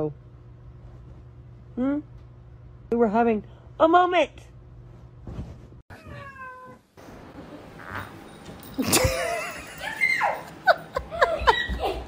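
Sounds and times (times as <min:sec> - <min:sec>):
cat meowing: 0:05.9 - 0:06.8
person laughing and squealing: 0:08.8 - 0:12.0.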